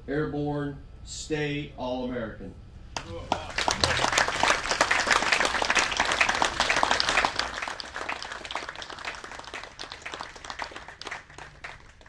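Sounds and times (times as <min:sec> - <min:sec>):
audience applauding: 0:03.0 - 0:12.0.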